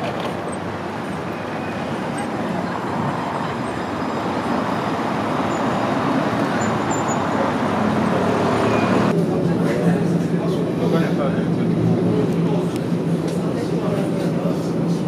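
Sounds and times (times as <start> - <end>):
tram running noise: 0.0 - 15.0
people talking: 9.1 - 15.0.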